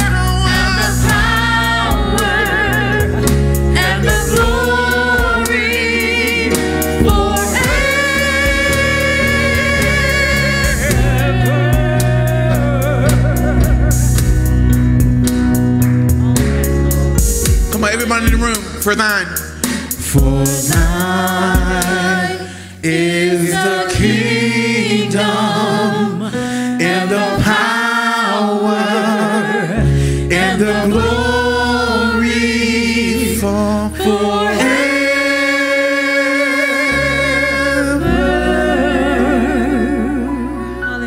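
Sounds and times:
voices singing held notes: 0.0 - 14.5, 17.8 - 41.0
low bass accompaniment: 0.0 - 26.2, 36.5 - 41.0.

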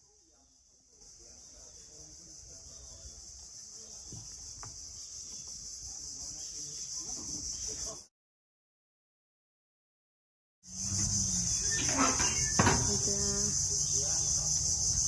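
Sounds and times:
high-pitched insect chorus: 0.0 - 8.1, 10.7 - 15.0.

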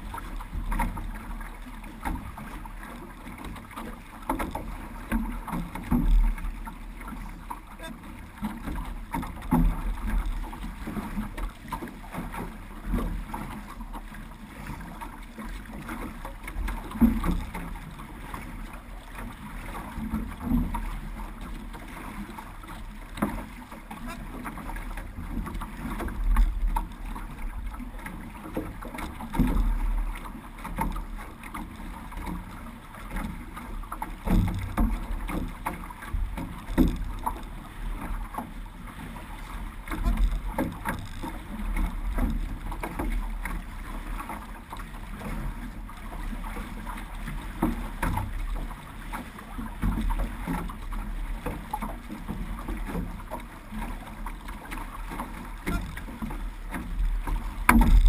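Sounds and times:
paddles splashing in water: 0.0 - 58.0
water washing along hull: 0.0 - 58.0
wind rumble on microphone: 56.9 - 58.0.

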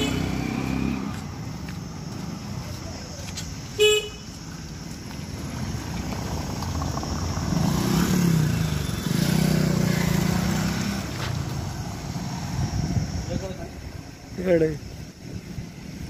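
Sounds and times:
vehicle horn beep: 0.0 - 0.4, 3.8 - 4.3.

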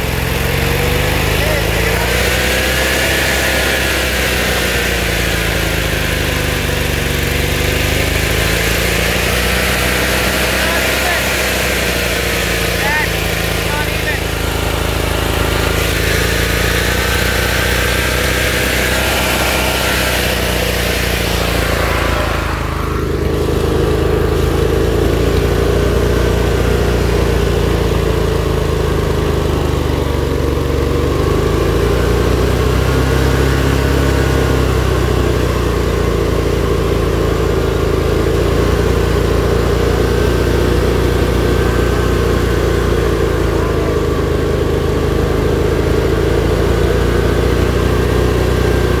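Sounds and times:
small tractor engine running: 0.0 - 49.0.

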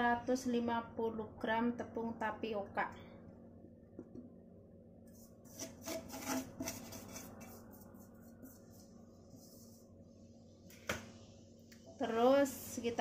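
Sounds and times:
flour rubbed in metal bowl: 5.1 - 10.1.

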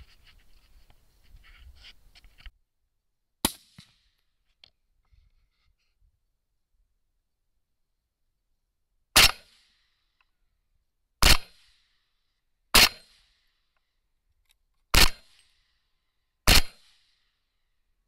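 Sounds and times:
rifle shots: 9.2 - 9.7, 11.2 - 11.8, 12.7 - 13.3, 14.9 - 15.4, 16.5 - 17.0.

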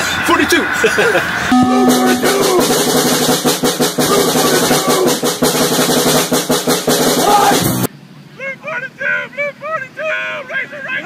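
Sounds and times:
held musical notes: 1.5 - 7.9
snare drum roll: 1.5 - 7.9.

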